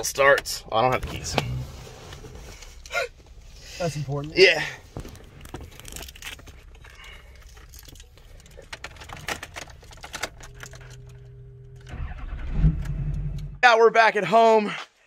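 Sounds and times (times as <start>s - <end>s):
ignition low hum: 0.0s - 13.6s
keys jangling and clicking: 5.7s - 11.3s
engine cranking: 5.8s - 13.5s.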